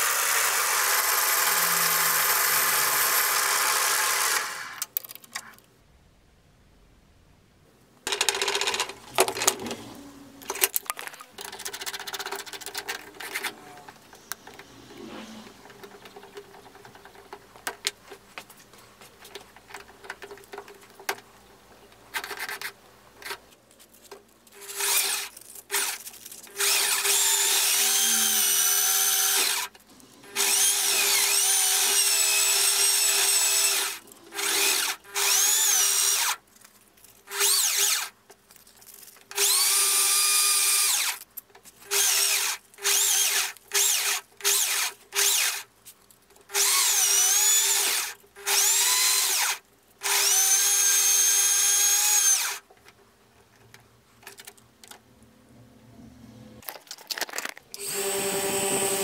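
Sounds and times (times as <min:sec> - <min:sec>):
power drill whining: 0:00.0 - 0:04.9, 0:24.6 - 0:26.0, 0:26.6 - 0:36.4, 0:37.3 - 0:38.1, 0:39.4 - 0:41.2, 0:41.9 - 0:45.6, 0:46.5 - 0:52.6, 0:57.8 - 0:59.0
handling clicks and rustles: 0:08.0 - 0:24.6, 0:25.3 - 0:26.6, 0:36.4 - 0:37.3, 0:38.2 - 0:39.4, 0:45.7 - 0:46.5, 0:56.6 - 0:57.8.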